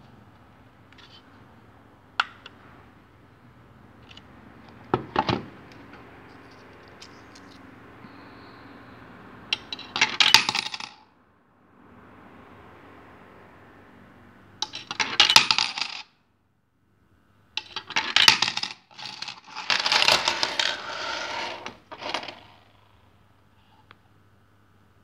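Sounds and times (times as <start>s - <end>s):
coins jingling and scraping: 6.3s - 7.6s, 17.8s - 22.5s
coins clinking onto a pile: 9.6s - 11.0s, 14.6s - 16.0s, 17.6s - 22.6s.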